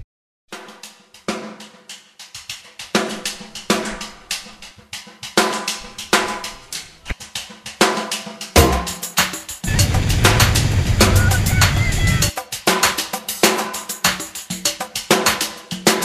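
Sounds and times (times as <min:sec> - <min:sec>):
drum beat with bass line: 0:02.3 - 0:16.0.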